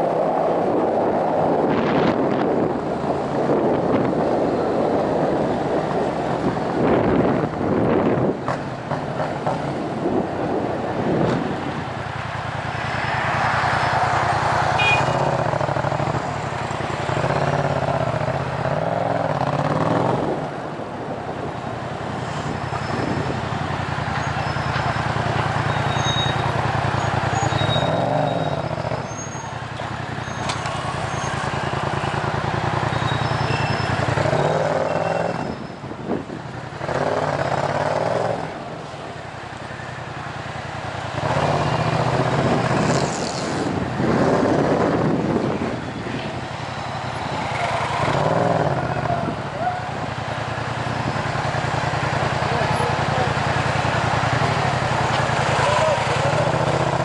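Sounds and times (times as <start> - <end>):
motorcycle engine with throttle blips: 14.6 - 20.4, 22.5 - 38.6, 39.5 - 57.0.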